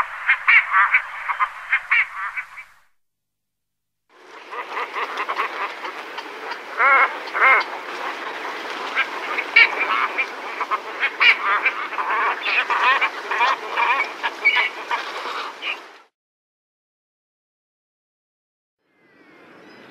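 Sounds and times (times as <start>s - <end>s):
cormorants calling: 0.0s - 2.8s, 4.2s - 15.9s.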